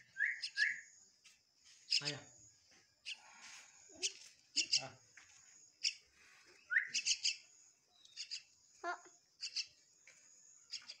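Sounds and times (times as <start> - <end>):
bird harsh high chirps: 0.0 - 0.9, 3.0 - 5.0, 5.8 - 9.8, 10.7 - 11.0.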